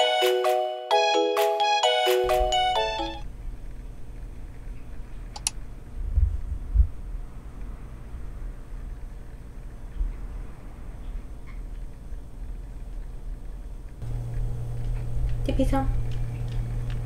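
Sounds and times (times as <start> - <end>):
chime jingle: 0.0 - 3.2
low rumble: 3.3 - 10.9.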